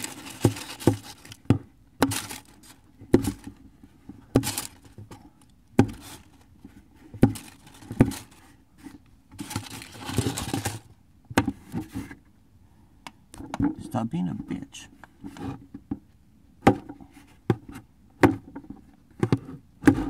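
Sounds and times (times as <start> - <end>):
tissue paper crinkling: 0.0 - 1.4, 2.1 - 2.8, 9.4 - 10.9.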